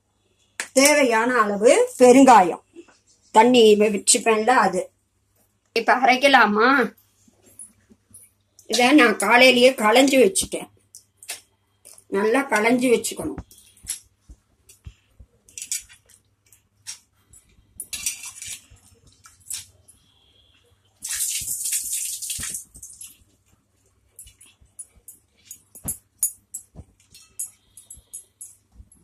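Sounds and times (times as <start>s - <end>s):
steel vessels clinking: 24.2s - 28.7s.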